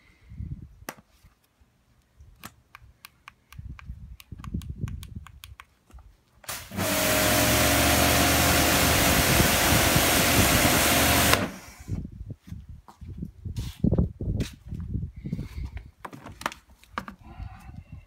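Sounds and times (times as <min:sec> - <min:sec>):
pressure washer motor: 0:06.5 - 0:11.9.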